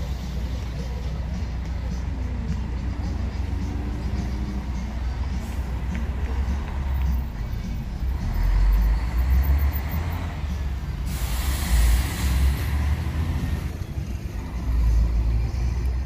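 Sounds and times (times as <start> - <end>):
bus diesel engine rumbling: 0.0 - 16.0
air hiss: 11.0 - 13.6.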